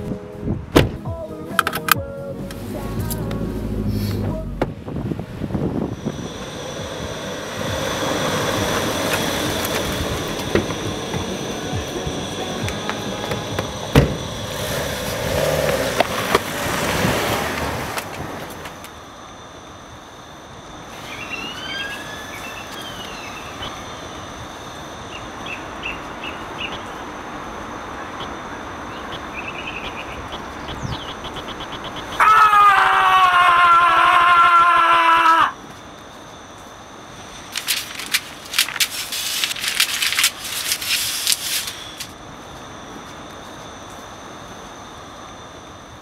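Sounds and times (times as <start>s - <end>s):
distant traffic rushing: 2.2s - 32.3s, 35.6s - 46.0s
gliding whistle: 21.0s - 23.6s
birds: 21.0s - 23.8s, 28.8s - 32.6s
paper crumpling: 37.5s - 42.1s.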